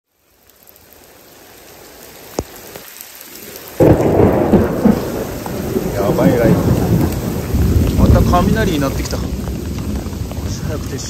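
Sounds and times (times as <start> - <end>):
steady rain: 0.0 - 11.0
thunder crack and rumble: 3.8 - 11.0.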